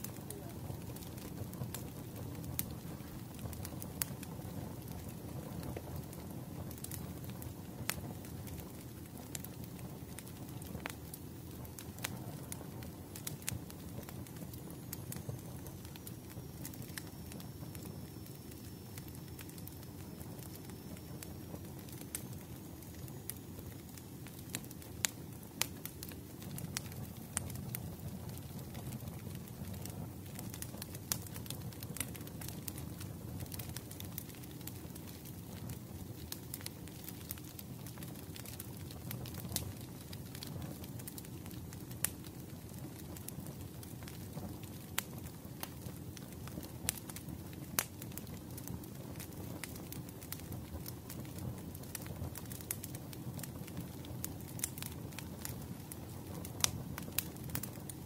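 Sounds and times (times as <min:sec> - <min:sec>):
fire pops and snaps: 0:00.0 - 0:58.0
wood fire crackling: 0:00.0 - 0:58.0.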